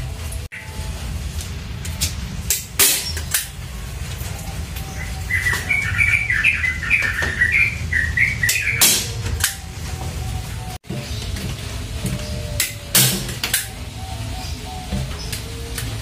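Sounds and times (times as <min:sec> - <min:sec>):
bird chirping: 0:04.3 - 0:16.0.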